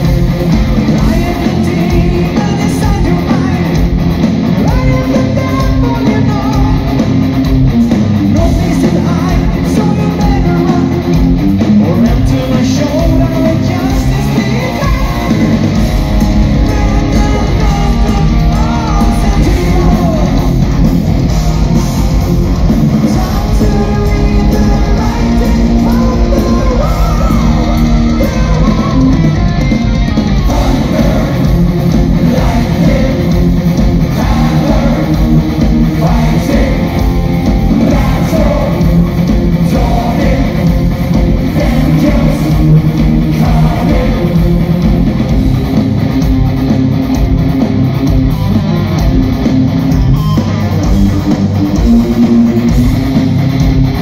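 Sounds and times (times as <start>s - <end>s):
metal band playing live: 0.0s - 54.0s
man singing: 0.9s - 3.8s, 4.6s - 6.9s, 8.3s - 11.1s, 11.8s - 15.6s, 16.5s - 20.6s, 23.0s - 29.4s, 30.4s - 44.6s.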